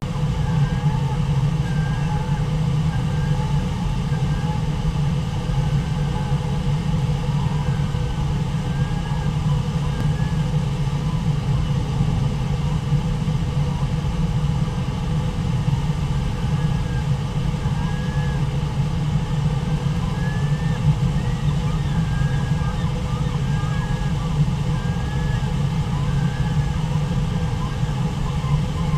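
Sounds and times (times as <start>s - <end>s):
faint high calls: 19.9s - 28.9s.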